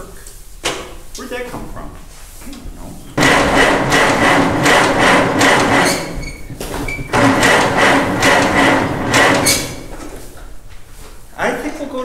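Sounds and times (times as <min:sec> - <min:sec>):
engine cranking without firing: 0:03.2 - 0:10.2.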